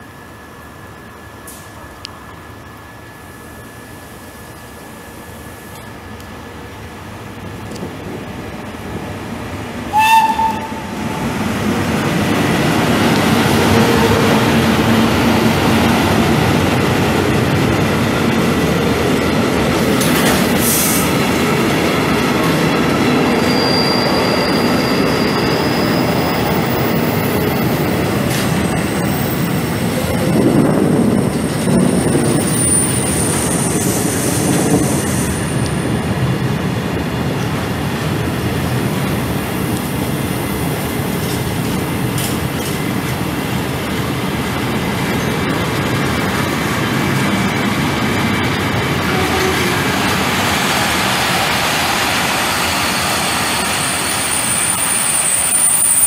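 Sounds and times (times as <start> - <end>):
train wheels rumbling on rails: 0.0 - 56.0
locomotive horn blast: 9.9 - 10.9, 49.1 - 50.0.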